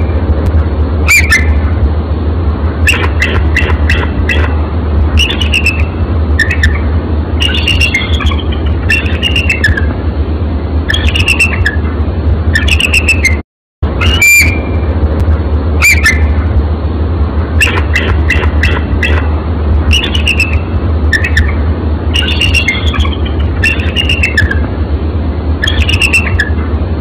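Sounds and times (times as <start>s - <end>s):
low rumble and hiss: 0.0s - 27.0s
eagle calling: 1.1s - 1.6s, 2.8s - 4.6s, 5.2s - 10.0s, 10.9s - 11.9s, 12.6s - 13.4s, 15.8s - 16.4s, 17.6s - 19.3s, 19.9s - 24.7s, 25.6s - 26.6s.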